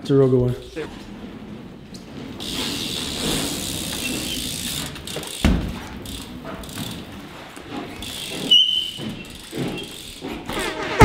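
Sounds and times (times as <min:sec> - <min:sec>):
bike tyres rolling on wooden floor: 0:00.0 - 0:11.0
tyre squeal: 0:01.9 - 0:11.0
bike landing thump: 0:02.4 - 0:07.2.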